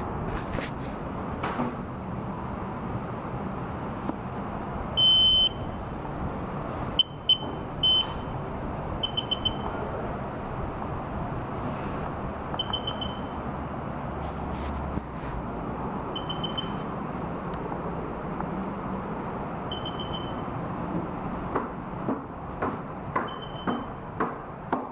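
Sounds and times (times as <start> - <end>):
steady background noise: 0.0 - 24.9
high-pitched electronic beeps: 7.0 - 8.3, 9.0 - 9.7, 12.6 - 13.4, 16.2 - 16.8, 19.7 - 20.5.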